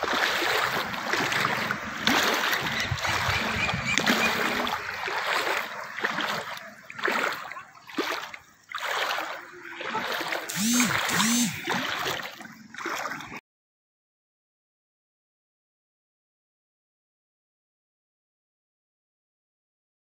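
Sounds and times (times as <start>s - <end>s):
floodwater splashing and sloshing: 0.0s - 13.4s
rising and falling calls: 10.5s - 11.7s.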